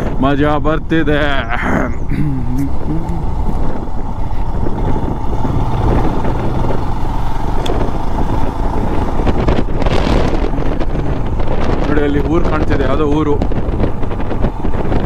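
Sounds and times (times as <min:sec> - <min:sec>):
wind rushing on microphone: 0:00.0 - 0:15.0
motorcycle engine running: 0:01.5 - 0:15.0.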